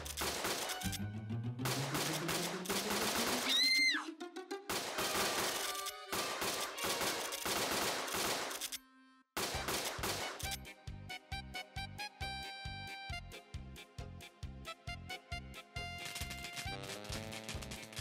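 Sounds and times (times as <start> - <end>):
cartoon gunfire: 1.6 - 4.0, 4.7 - 8.6, 9.4 - 10.5.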